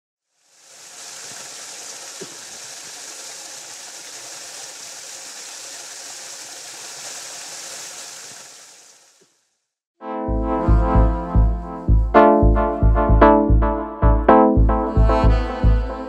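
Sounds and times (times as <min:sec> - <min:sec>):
waterfall splashing into pool: 0:00.3 - 0:09.4.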